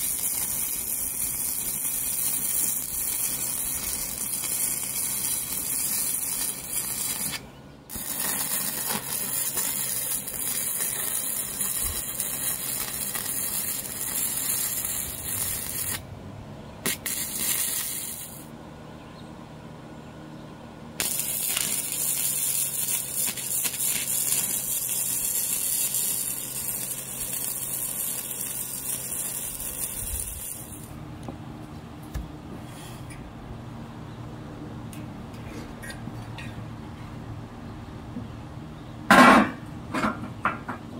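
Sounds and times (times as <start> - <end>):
arc welding crackling sizzle: 0.0 - 16.1, 16.8 - 18.5, 21.0 - 31.0.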